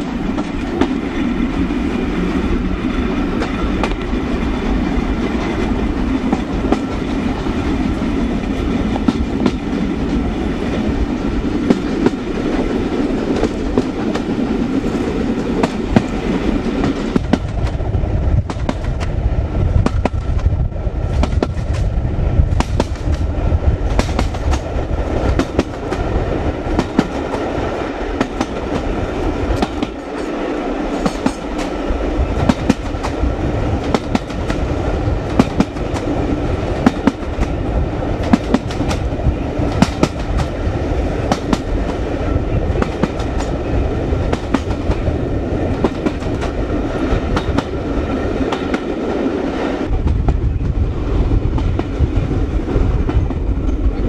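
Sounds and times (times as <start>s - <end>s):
train rolling rumble: 0.0s - 54.0s
wind buffeting microphone: 0.0s - 54.0s
wheels clicking over rail joints: 22.5s - 49.2s.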